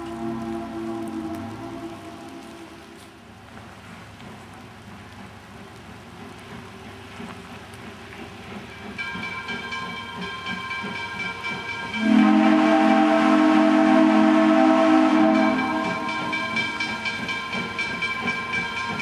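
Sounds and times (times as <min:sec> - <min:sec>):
steam whistle chord: 0:00.0 - 0:03.1, 0:11.7 - 0:19.0
faint rumble of train: 0:00.0 - 0:19.0.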